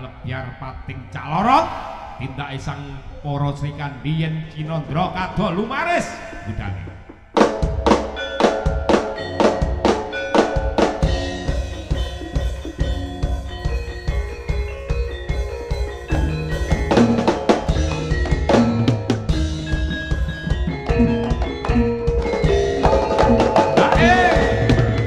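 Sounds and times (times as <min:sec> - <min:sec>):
held melodic tones: 0:07.6 - 0:25.0.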